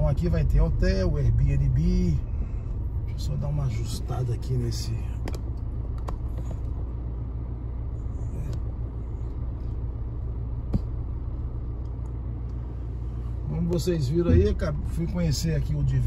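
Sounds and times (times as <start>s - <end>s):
car engine and tyres rumbling: 0.0s - 16.0s.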